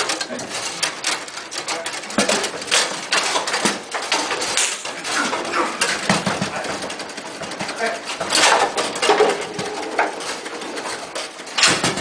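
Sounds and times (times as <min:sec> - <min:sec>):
foosball ball and rods clacking: 0:00.0 - 0:12.0.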